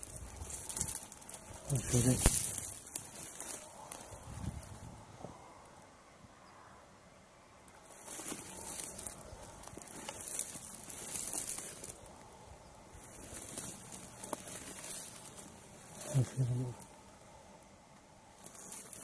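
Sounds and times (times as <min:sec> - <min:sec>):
dry grass rustling and crackling: 0:00.0 - 0:06.0, 0:07.6 - 0:19.0.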